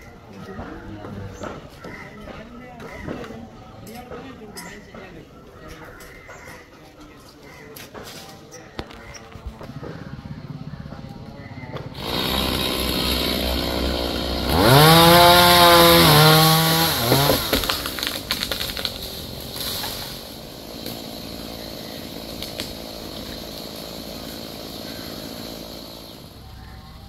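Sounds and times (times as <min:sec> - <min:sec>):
chainsaw revving and cutting: 0:11.9 - 0:26.8
limb cracking and breaking: 0:17.5 - 0:19.1.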